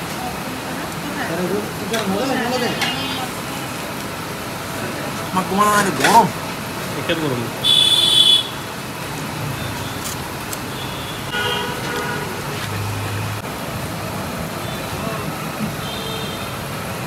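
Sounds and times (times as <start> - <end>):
road traffic noise: 0.0 - 17.0
vehicle horn tooting: 7.6 - 8.7, 10.7 - 12.4, 15.8 - 16.6.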